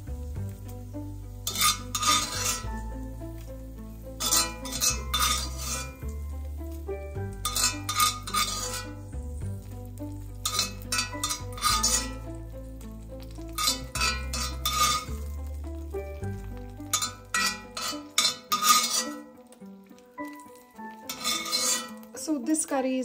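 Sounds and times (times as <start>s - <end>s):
bass line: 9.0s - 10.5s.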